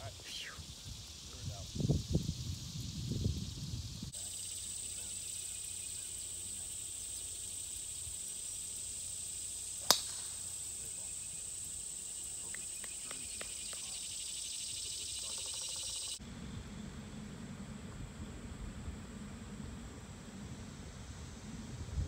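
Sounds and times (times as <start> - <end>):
insects droning: 0.0 - 22.0
golf club striking ball: 9.8 - 10.5.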